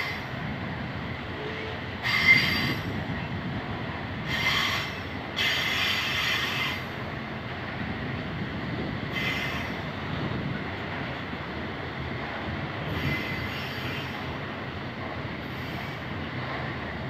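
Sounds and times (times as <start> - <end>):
train wheels rumbling on rail: 0.0 - 17.0
high-pitched wheel squeal: 2.0 - 2.9.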